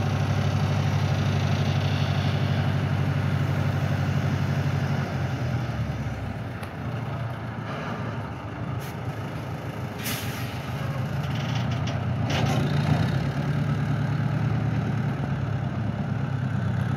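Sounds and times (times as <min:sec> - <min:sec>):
tractor diesel engine running: 0:00.0 - 0:16.9
short hisses of air: 0:10.0 - 0:10.8.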